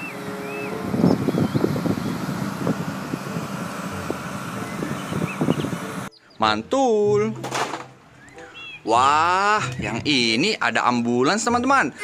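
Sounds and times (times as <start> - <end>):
bus engine running: 0.0 - 6.1
wind noise on microphone: 0.5 - 6.1.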